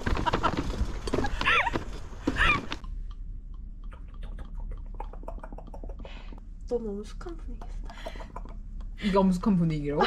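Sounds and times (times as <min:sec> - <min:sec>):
women laughing: 0:00.1 - 0:02.7, 0:04.0 - 0:06.4, 0:07.5 - 0:09.0.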